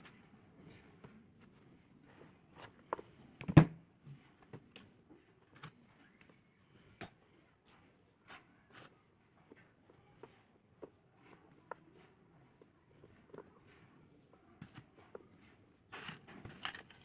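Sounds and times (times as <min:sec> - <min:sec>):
clicks and rustles of wires: 0:14.6 - 0:17.0.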